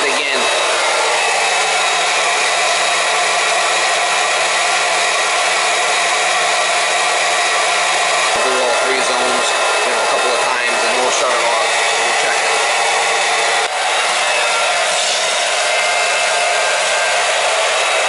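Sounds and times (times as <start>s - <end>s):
electric pump motor hum: 0.0s - 18.0s
hiss of liquid flow: 14.9s - 15.3s.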